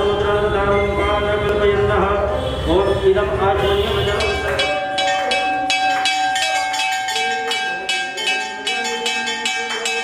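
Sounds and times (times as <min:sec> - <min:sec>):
temple bell ringing: 0:04.1 - 0:10.0.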